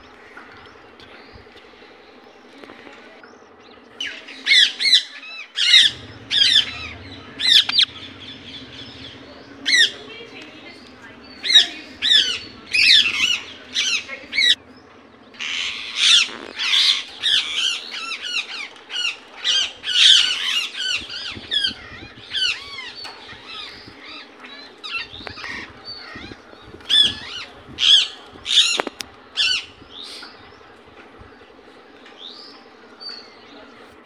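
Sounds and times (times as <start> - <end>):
parakeet calling: 4.0 - 30.4.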